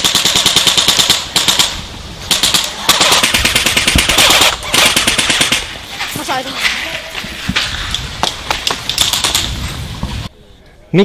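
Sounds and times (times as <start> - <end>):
airsoft guns firing full auto: 0.0 - 5.7.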